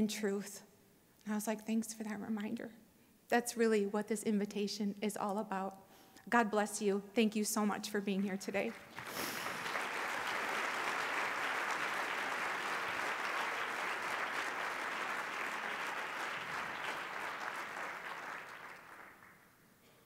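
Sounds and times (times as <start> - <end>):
audience applauding: 8.7 - 19.6.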